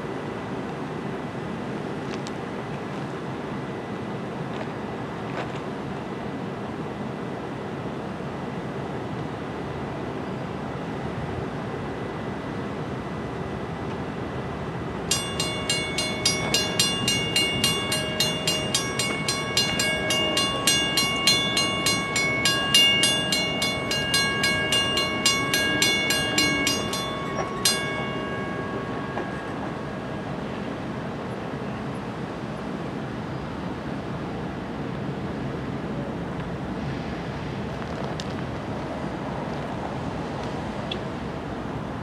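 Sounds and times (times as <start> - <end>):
railroad crossing bell ringing: 15.0 - 33.6.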